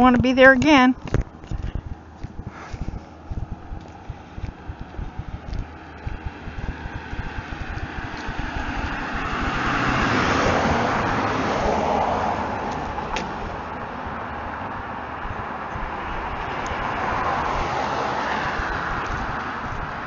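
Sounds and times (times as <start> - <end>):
car driving past: 3.7 - 20.0.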